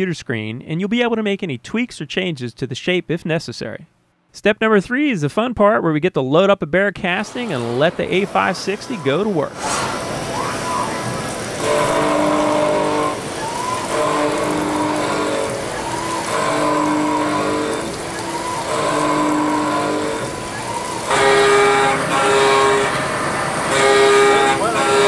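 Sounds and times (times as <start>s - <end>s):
cnc machine cutter whining: 7.2s - 25.0s.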